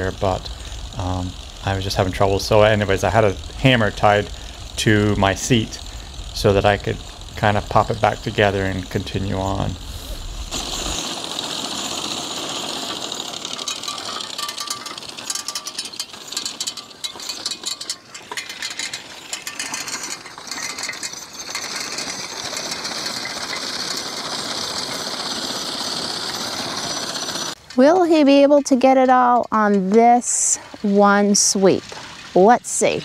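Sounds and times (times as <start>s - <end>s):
mower knife metallic clatter: 12.8s - 25.2s.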